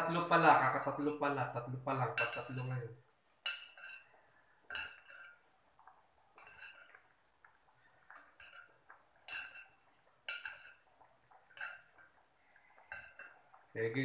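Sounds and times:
metal spoon clinking on pot: 2.0s - 2.8s, 3.4s - 7.1s, 8.1s - 12.2s, 12.8s - 13.6s.

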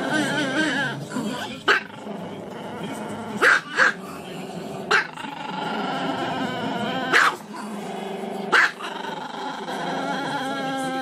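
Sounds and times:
dog yipping: 1.7s - 1.9s, 3.4s - 4.0s, 4.9s - 5.2s, 7.1s - 7.4s, 8.5s - 8.8s
dog howling: 8.8s - 11.0s.

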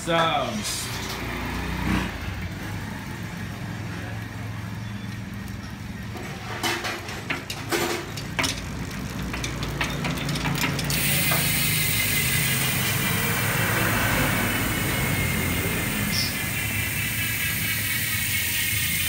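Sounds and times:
bicycle hub ticking: 7.2s - 19.0s.

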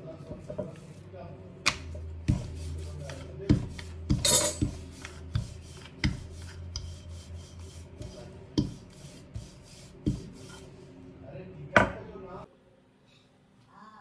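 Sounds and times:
rolling pin rolling dough: 0.0s - 10.9s
rolling pin knocking on counter: 1.7s - 6.3s, 8.0s - 10.3s.

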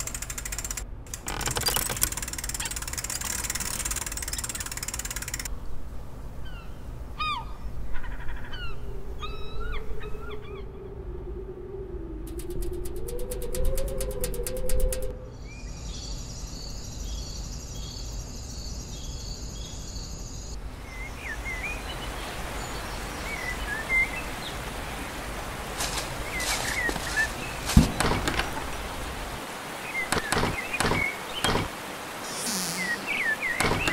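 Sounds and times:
steady outdoor hiss: 0.0s - 33.9s
knocks and thuds: 27.0s - 28.8s, 30.1s - 31.7s, 33.6s - 33.9s
bird chirps: 32.2s - 33.9s.

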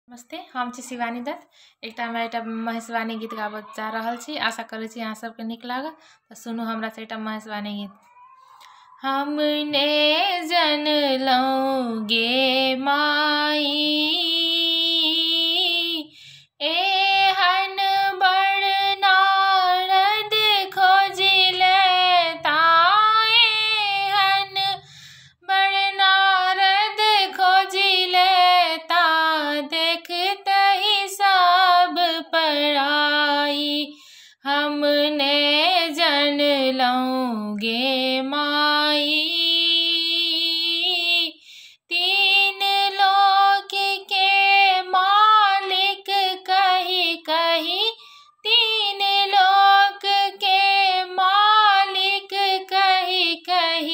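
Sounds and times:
woman singing unaccompanied: 0.1s - 53.9s.

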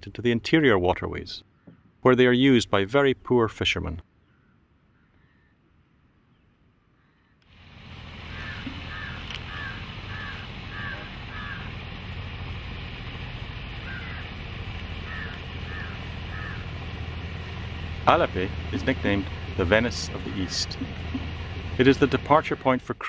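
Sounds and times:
crows cawing: 4.2s - 5.6s, 7.0s - 7.4s, 8.3s - 11.8s, 13.8s - 14.4s, 15.0s - 17.9s
boat engine droning: 7.4s - 23.0s.

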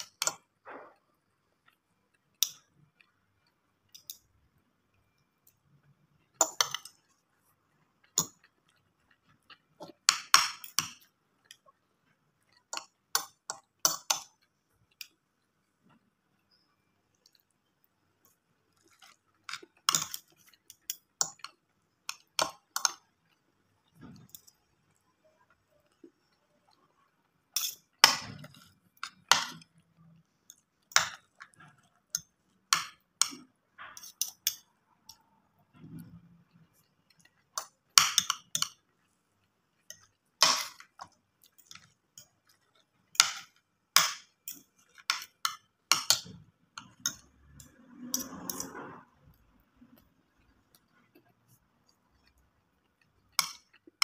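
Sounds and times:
cutlery clinking on a plate: 27.5s - 29.7s, 30.9s - 34.7s.

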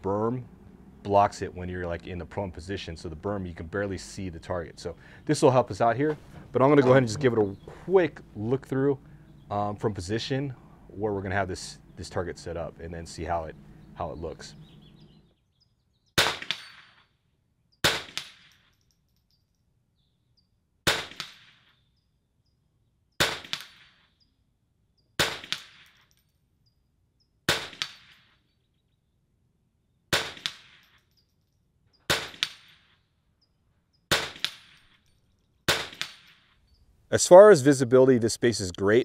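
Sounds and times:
rifle shots: 16.2s - 17.0s, 17.8s - 18.6s, 20.8s - 21.7s, 23.2s - 24.0s, 25.2s - 26.0s, 27.5s - 28.4s, 30.1s - 30.9s, 32.1s - 33.0s, 34.1s - 35.0s, 35.7s - 36.5s.

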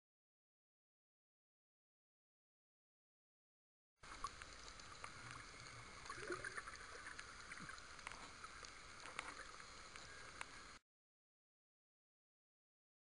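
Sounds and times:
bubbly gurgle: 4.0s - 10.8s
clicks and crackles: 4.0s - 10.8s
underwater hiss: 4.2s - 10.8s.

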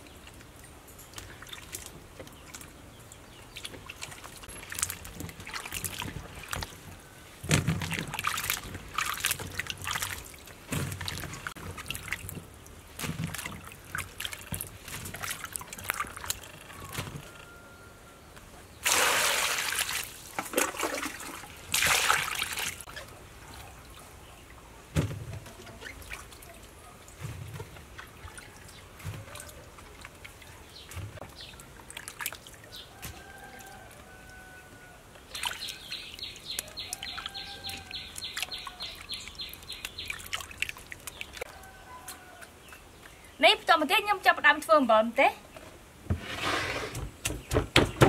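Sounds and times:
water trickling: 0.0s - 17.2s, 35.2s - 43.6s
hands splashing fruit in water: 3.5s - 6.8s, 7.4s - 17.1s, 18.8s - 23.1s, 25.0s - 33.8s, 35.3s - 41.5s.

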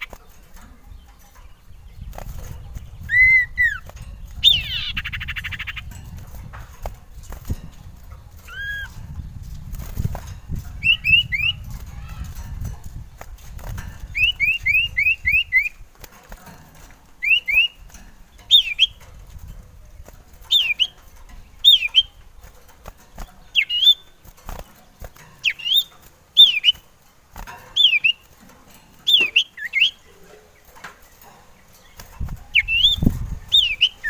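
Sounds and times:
bird singing whistles: 3.0s - 5.8s, 10.8s - 11.6s, 14.2s - 15.8s, 17.2s - 17.8s, 18.5s - 19.0s, 20.5s - 21.0s, 23.5s - 24.1s, 25.4s - 26.8s, 27.8s - 28.3s, 29.1s - 30.0s, 32.5s - 34.0s.

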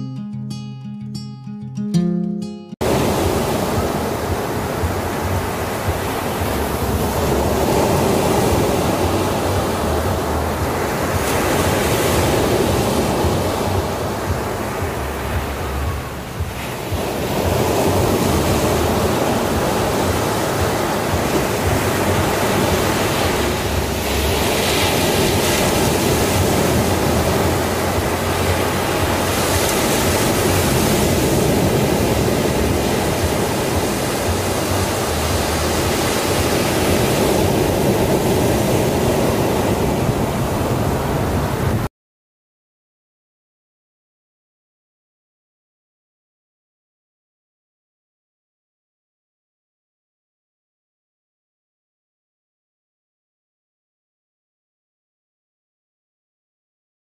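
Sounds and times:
ocean surf on beach: 2.8s - 41.9s.

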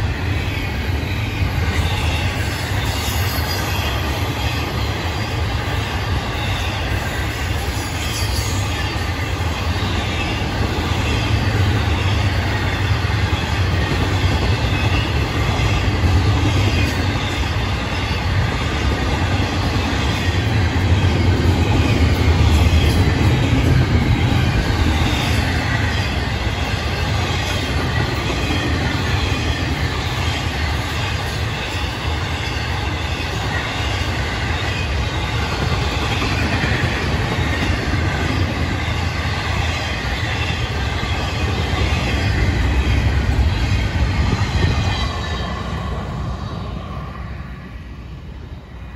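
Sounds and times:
freight train rumbling past: 0.0s - 48.9s
high wheel squeal: 0.1s - 5.4s, 6.2s - 18.8s.

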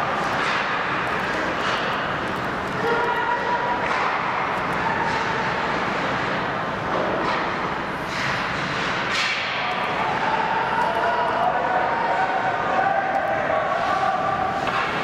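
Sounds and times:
crowd and arena hubbub: 0.0s - 15.0s.

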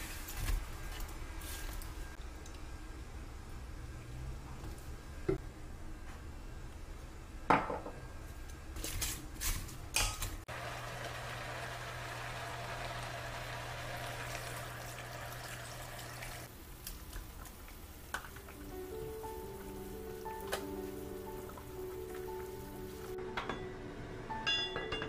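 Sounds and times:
water pouring into pot: 11.9s - 17.8s.

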